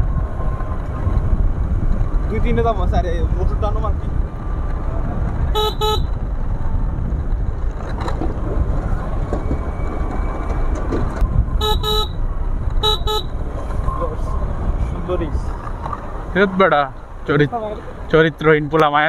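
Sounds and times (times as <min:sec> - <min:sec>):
wind noise on microphone: 0:00.0 - 0:16.2
road rumble: 0:00.0 - 0:19.0
motorbike horn beeping: 0:05.6 - 0:06.2, 0:11.6 - 0:12.2, 0:12.8 - 0:13.3.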